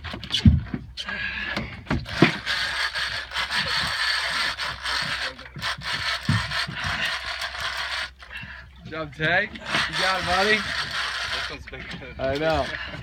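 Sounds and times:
fishing reel ratcheting buzz: 2.0 - 8.6, 9.6 - 13.0.

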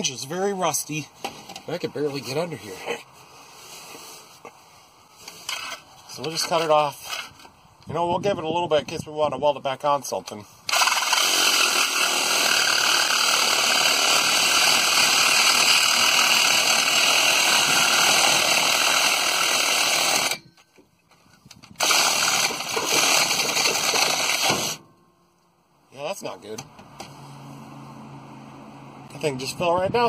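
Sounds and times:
reciprocating saw cutting metal pipe: 10.7 - 20.5, 21.8 - 24.8.

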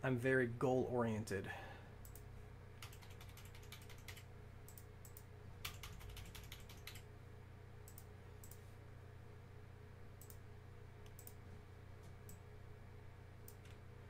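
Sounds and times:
faint low hum: 0.0 - 14.0
typing on computer keyboard: 2.8 - 7.0.

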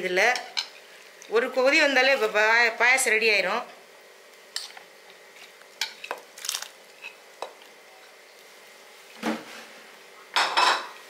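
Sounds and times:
kitchenware clinking: 10.4 - 11.0.

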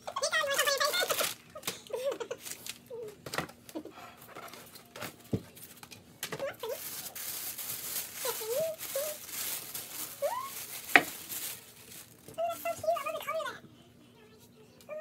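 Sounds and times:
tissue paper rustling: 0.6 - 1.4, 2.3 - 2.8, 6.4 - 13.2.

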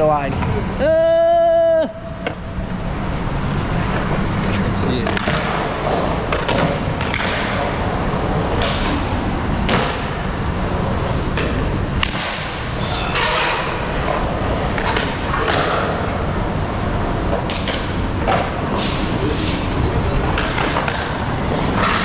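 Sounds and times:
skateboard wheels rolling on concrete: 2.2 - 22.0
skateboard clacks and thuds: 5.0 - 10.3, 11.2 - 16.2, 17.1 - 18.8, 20.2 - 22.0.

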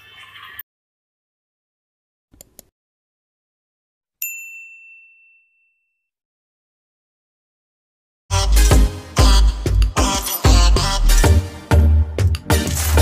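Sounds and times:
notification bell ding: 4.2 - 6.1.

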